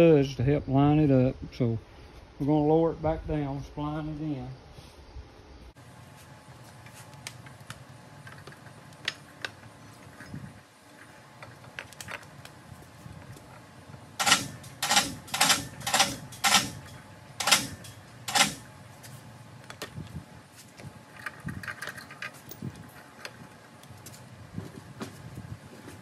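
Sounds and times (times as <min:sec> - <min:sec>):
hoist motor running: 0:05.8 - 0:24.7.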